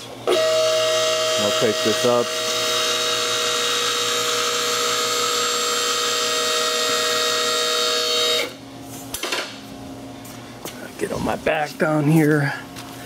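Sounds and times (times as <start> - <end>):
electric pump motor whining: 0.0 - 8.6.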